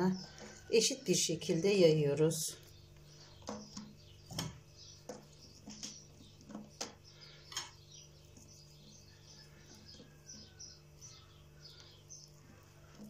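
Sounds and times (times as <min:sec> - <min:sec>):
hand scattering herbs on dough: 0:02.5 - 0:13.0
faint high chirps: 0:02.6 - 0:13.0.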